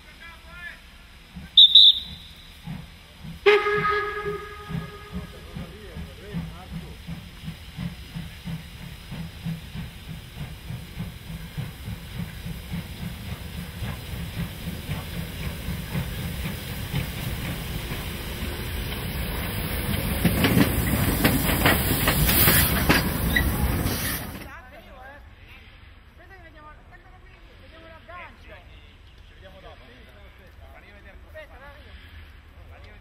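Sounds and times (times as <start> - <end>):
steam hissing: 0.0 - 24.6
steam locomotive chuffing: 0.0 - 24.6.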